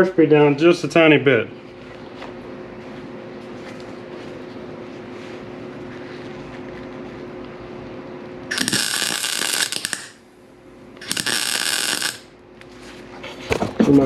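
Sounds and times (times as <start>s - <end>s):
steady hum: 0.0s - 14.0s
welder arc crackling: 8.5s - 10.3s, 11.0s - 12.4s.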